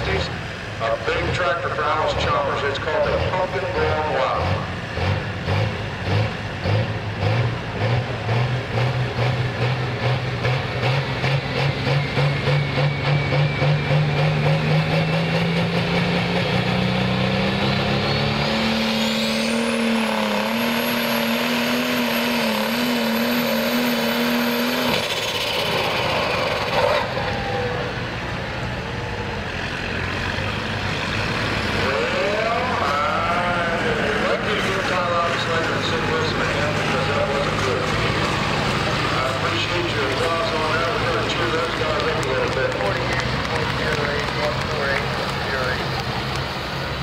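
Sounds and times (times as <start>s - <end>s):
diesel engine revving: 0.0s - 47.0s
turbocharger whistle: 11.3s - 16.1s, 17.6s - 28.1s.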